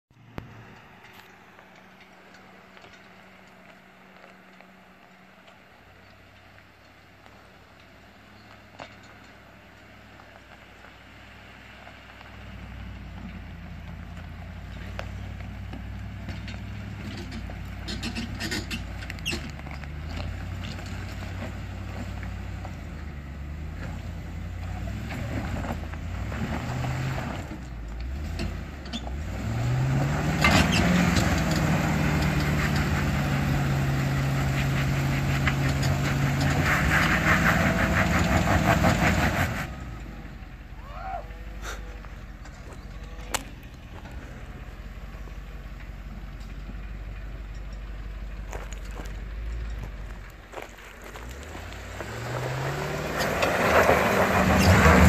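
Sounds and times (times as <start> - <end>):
off-road vehicle engine climbing: 0.0 - 55.0
tyres crunching on loose rock: 48.4 - 55.0.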